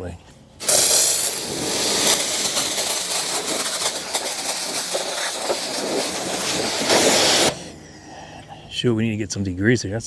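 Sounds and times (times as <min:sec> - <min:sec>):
pressure washer spraying: 0:00.6 - 0:07.7.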